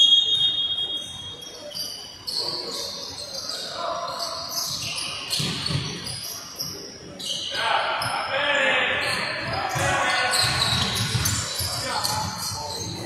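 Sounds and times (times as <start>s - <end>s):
sneakers squeaking on court: 0.0s - 8.3s, 9.0s - 13.0s
players calling out: 7.2s - 13.0s
loud high squeal: 9.0s - 13.0s
basketball bouncing: 9.4s - 13.0s.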